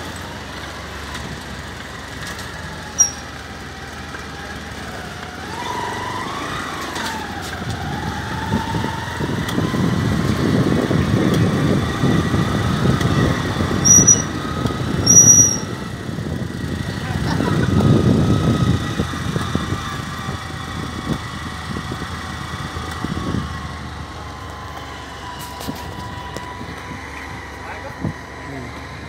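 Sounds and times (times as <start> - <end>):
vehicle engine and road rumble: 0.0 - 29.0
short high-pitched beep: 3.0 - 3.3, 13.8 - 14.3, 15.1 - 15.7.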